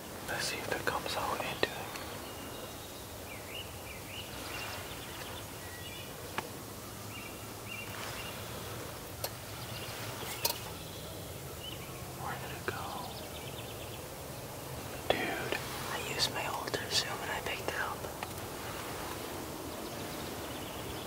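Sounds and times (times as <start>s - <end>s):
low background noise: 0.0s - 21.0s
bird chirps: 9.2s - 17.9s.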